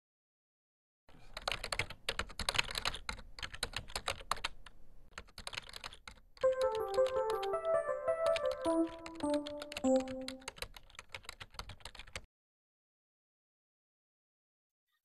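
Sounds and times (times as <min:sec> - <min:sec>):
keyboard typing: 0:01.3 - 0:12.3
tune of single notes: 0:06.4 - 0:10.5.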